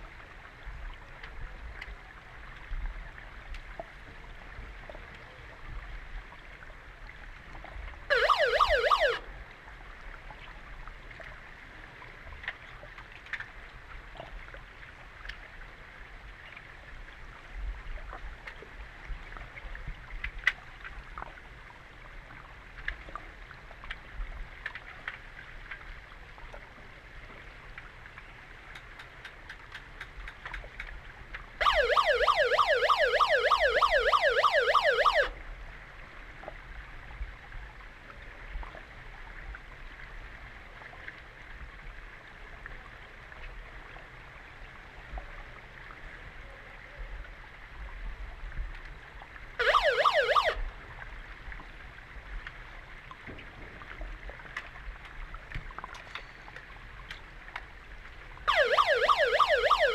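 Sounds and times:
underwater siren warbling: 8.1 - 9.3, 31.6 - 35.4, 49.6 - 50.7, 58.5 - 59.9.

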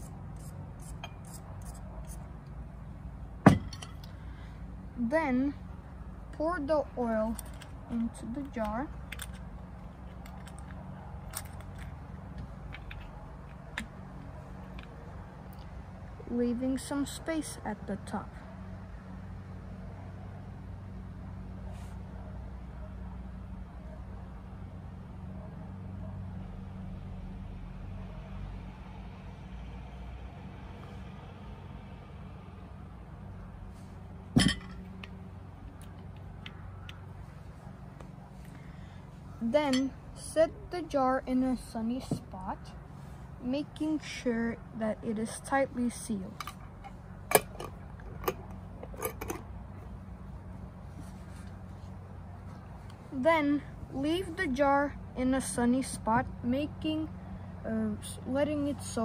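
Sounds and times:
low steady hum: 0.0 - 59.0.

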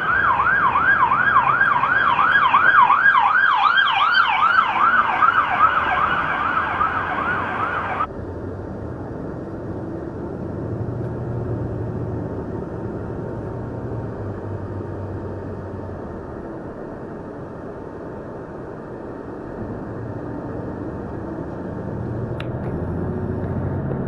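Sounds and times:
police siren yelping: 0.0 - 8.1
road and engine rumble: 0.0 - 24.0.

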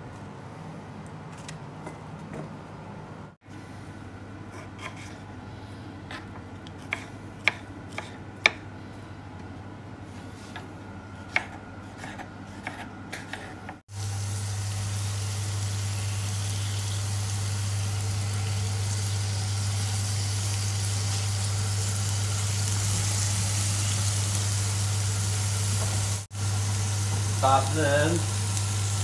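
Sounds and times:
fruit sizzling in frying pan: 13.9 - 29.0.

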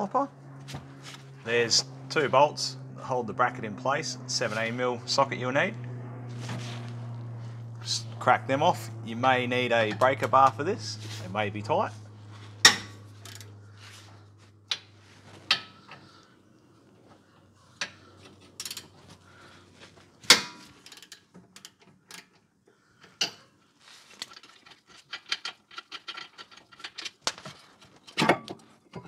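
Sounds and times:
metal tools clinking: 24.2 - 29.0.

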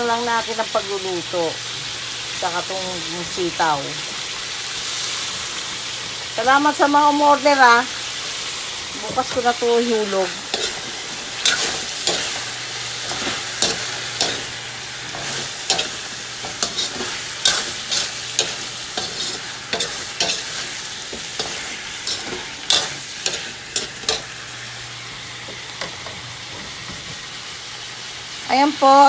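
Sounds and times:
vegetables sizzling in a wok: 0.0 - 29.0
metal spatula scraping wok: 9.0 - 24.3.

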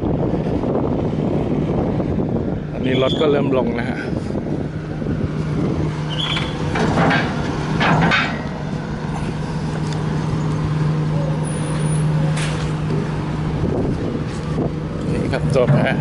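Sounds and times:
car engines running: 0.0 - 16.0
short clunks: 6.1 - 8.6.

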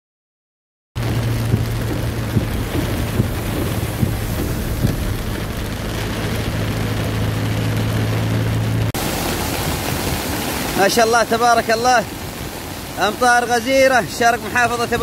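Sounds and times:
soft knocks: 1.0 - 6.5
low hum of engine and road: 1.0 - 10.8
heavy rain pelting car: 1.0 - 15.0.

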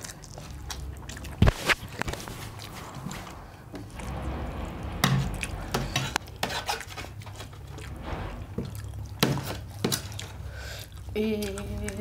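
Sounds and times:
spoon scraping a steel plate: 5.0 - 7.5.

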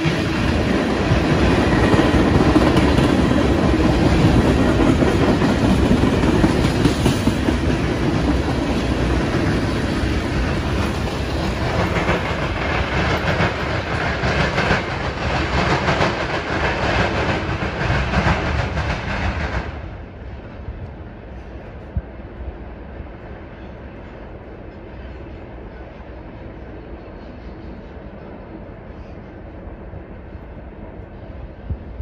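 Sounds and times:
clickety-clack over rail joints: 0.0 - 25.6
train wheels rumbling on rails: 0.0 - 32.0.

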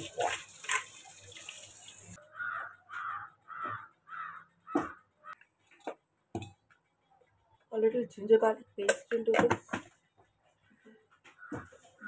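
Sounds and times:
crow cawing: 2.2 - 5.4.

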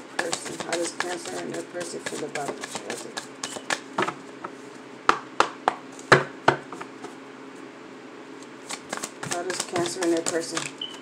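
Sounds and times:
playing cards being shuffled: 0.2 - 3.9, 8.6 - 10.8.

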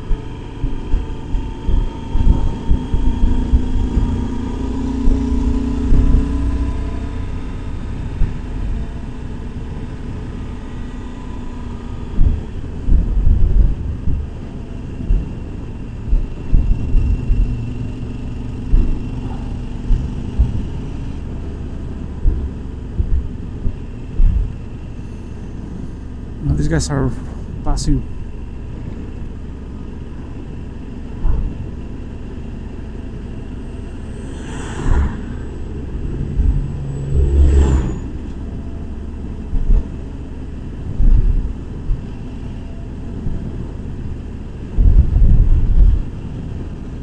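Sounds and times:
motorcycle engine running: 0.0 - 26.4
wind buffeting microphone: 0.0 - 47.0.

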